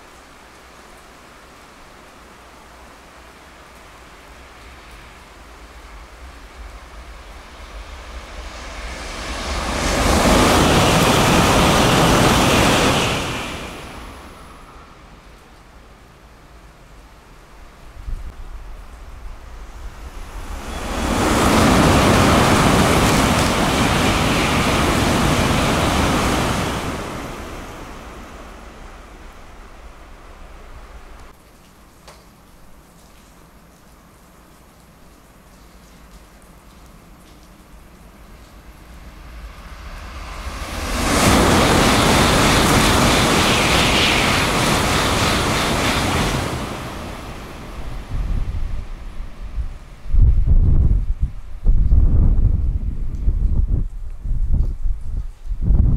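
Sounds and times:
high-speed train rushing past: 3.9 - 17.8, 18.4 - 31.4, 38.2 - 53.0.

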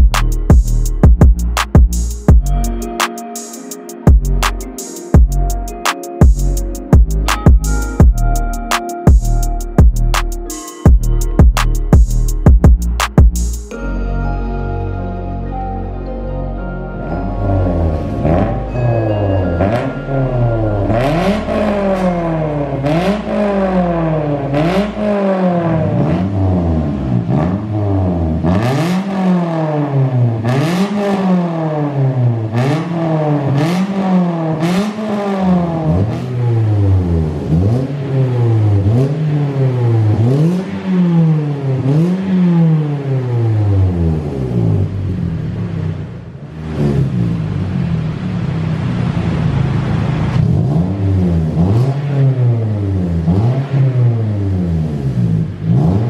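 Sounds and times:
car engine revving: 17.0 - 56.0.

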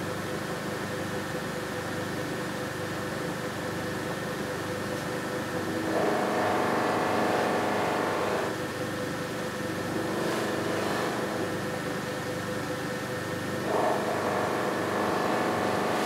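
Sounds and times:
bench grinder motor hum: 5.7 - 8.5, 9.9 - 11.5, 13.6 - 16.0
guitar body buffed on wheel: 5.7 - 8.5, 9.9 - 11.5, 13.6 - 16.0.

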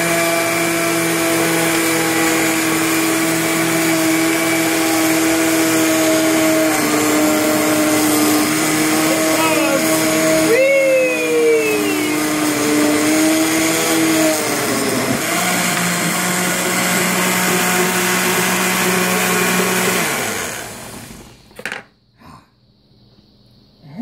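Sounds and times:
blender running: 0.0 - 21.4.

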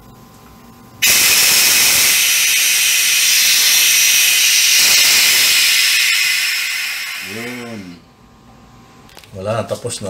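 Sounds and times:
compressed air hissing from valve: 1.0 - 8.0.

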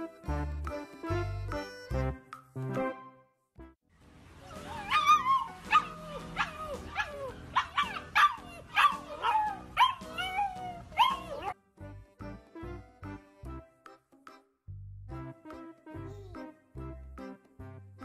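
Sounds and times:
puppy yelping howls: 4.5 - 11.6.

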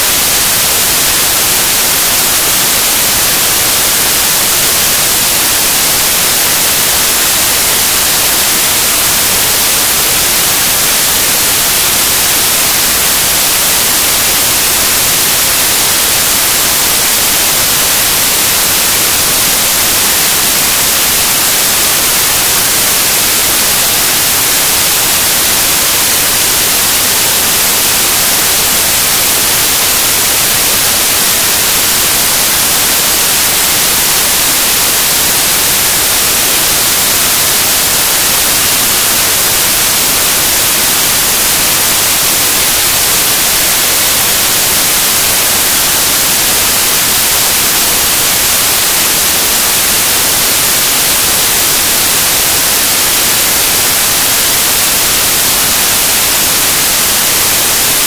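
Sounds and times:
loud static hiss: 0.0 - 58.0.

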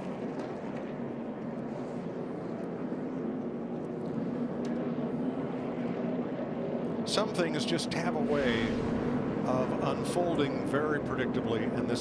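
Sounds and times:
race car engines passing: 7.0 - 12.0.

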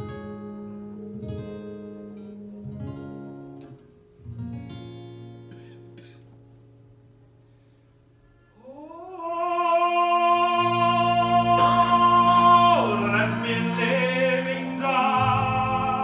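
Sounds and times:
slow quiet instrumental ensemble: 0.0 - 9.2.

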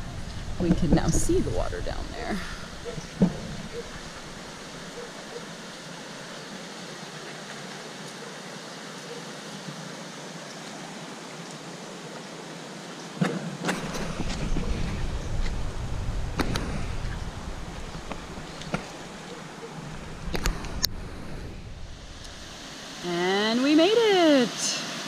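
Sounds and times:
wind buffeting microphone: 0.0 - 4.9, 13.7 - 22.6
rocky stream rushing: 0.0 - 25.0.

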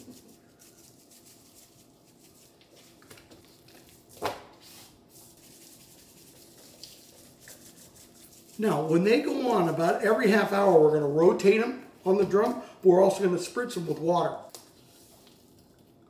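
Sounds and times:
hands rubbing meat: 0.0 - 4.1, 4.7 - 9.7.

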